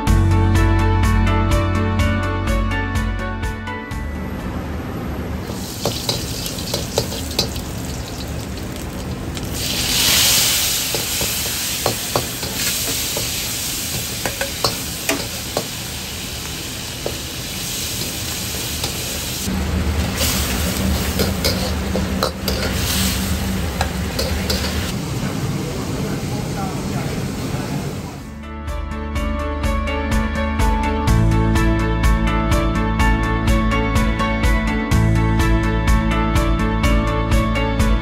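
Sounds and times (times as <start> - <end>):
food sizzling in a wok: 5.4 - 28.0
metal ladle scraping a wok: 20.0 - 24.9.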